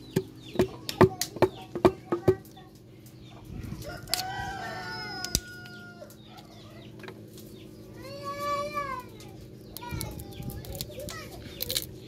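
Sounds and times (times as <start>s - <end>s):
rooster crowing: 3.8s - 6.8s.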